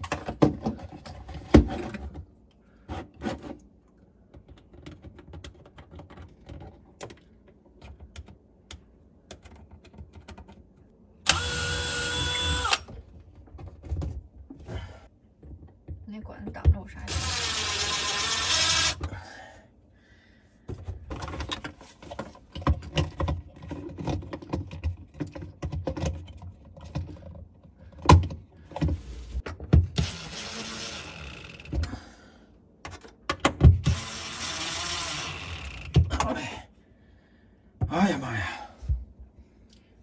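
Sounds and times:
cordless drill driving screws: 11.3s - 12.9s, 17.1s - 19.0s, 30.0s - 31.6s, 33.8s - 35.9s.

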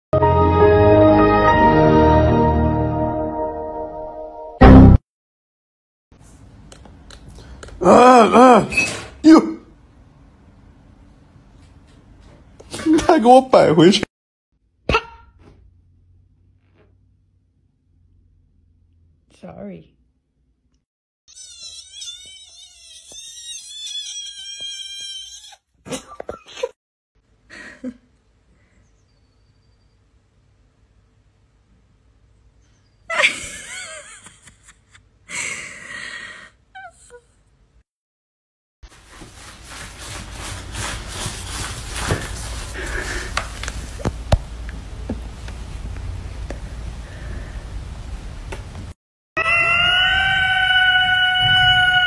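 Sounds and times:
kitten crying high-pitched: 21.3s - 25.6s, 49.4s - 52.0s.

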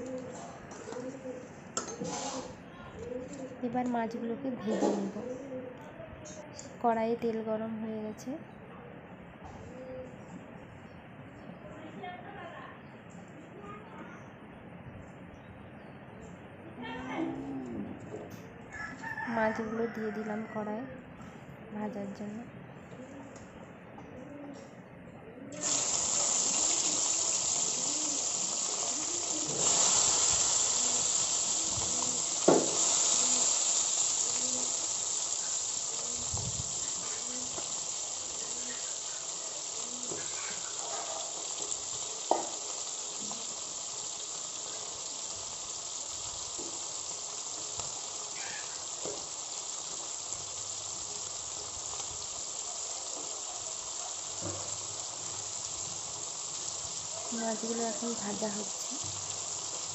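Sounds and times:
fish sizzling in hot oil: 25.6s - 59.9s
sharp oil pops: 32.4s - 32.9s.

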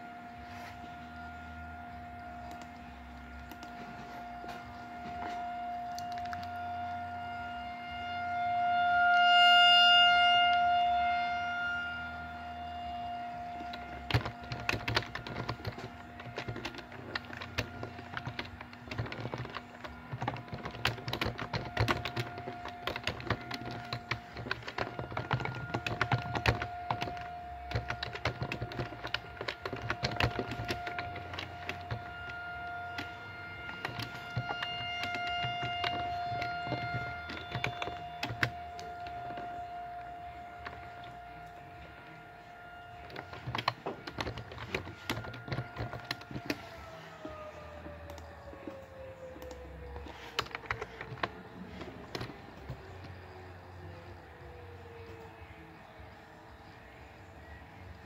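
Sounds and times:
warning siren steady tone: 0.0s - 58.0s
sharp clicks and taps: 13.6s - 39.6s, 43.0s - 46.6s.

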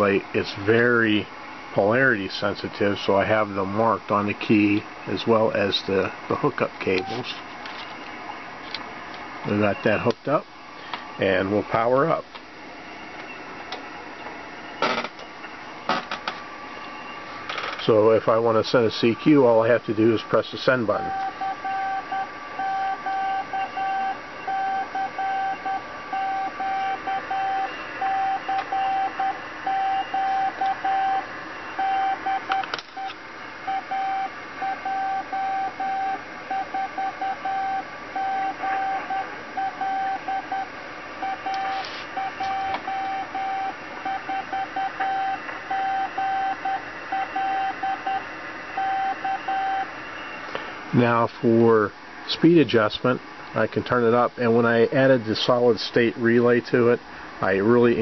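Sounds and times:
faint steady hum: 0.0s - 58.0s
morse code beeps: 21.0s - 48.2s, 48.8s - 49.9s.

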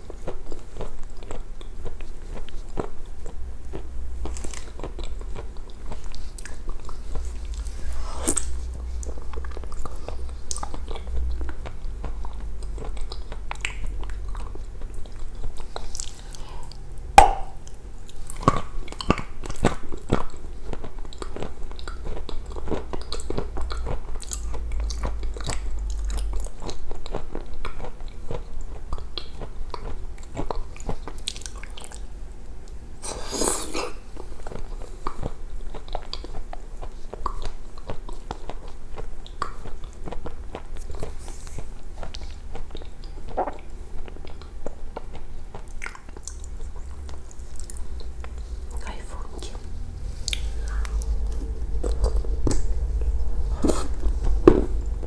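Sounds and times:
person chewing crunchy treat: 0.0s - 55.0s.

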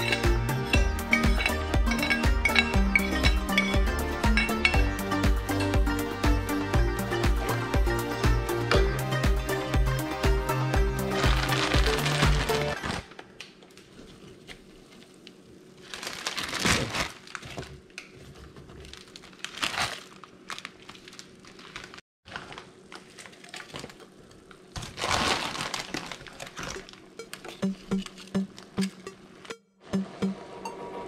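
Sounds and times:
plastic packaging crinkling: 11.1s - 14.0s, 14.7s - 27.5s.

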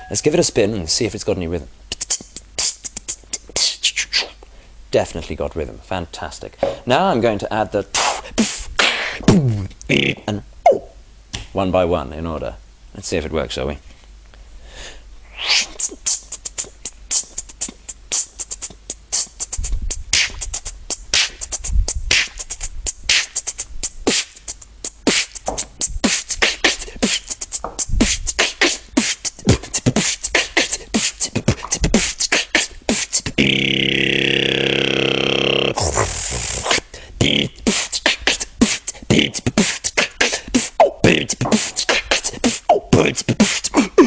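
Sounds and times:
beatboxing: 1.9s - 4.5s, 7.8s - 11.5s, 15.3s - 44.0s
held synth-like vocal tone: 33.4s - 37.6s.

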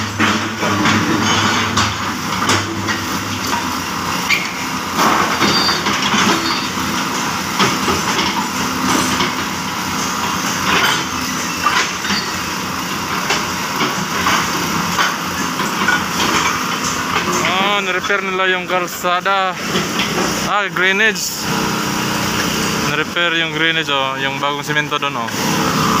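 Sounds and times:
bucket scraping rubble and soil: 0.0s - 18.2s
excavator diesel engine running: 0.0s - 26.0s.

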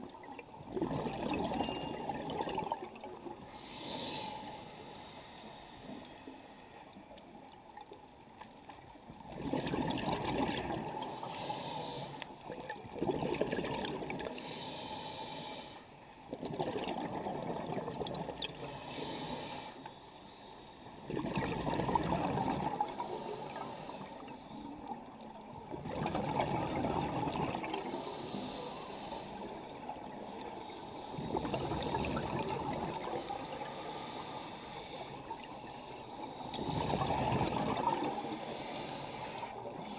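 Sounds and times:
exhaled bubbles gurgling: 0.0s - 4.1s, 9.1s - 11.7s, 12.4s - 14.4s, 16.3s - 18.8s, 21.0s - 28.6s, 29.3s - 34.3s, 36.4s - 39.9s
diver breathing through regulator: 3.4s - 6.8s, 10.9s - 12.4s, 14.2s - 15.9s, 18.6s - 21.0s, 27.6s - 39.9s.

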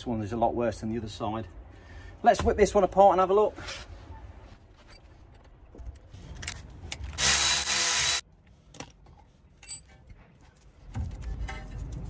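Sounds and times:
cordless ratchet whirring: 7.1s - 8.2s
tools clinking and rustling: 8.7s - 10.2s.

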